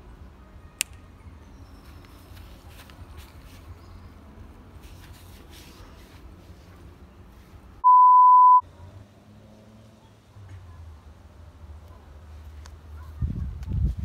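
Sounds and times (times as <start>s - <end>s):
faint outdoor background: 0.0s - 14.0s
censor bleep: 7.8s - 8.6s.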